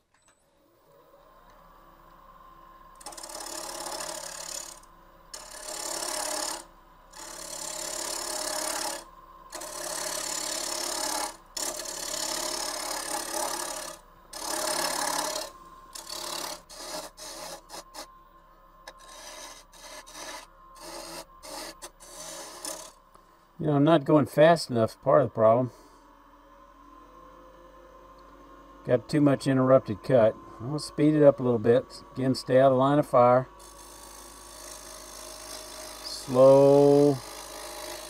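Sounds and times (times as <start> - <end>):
gouge scraping wood on lathe: 3.0 - 4.8, 5.4 - 18.1, 18.9 - 23.0, 32.2 - 38.0.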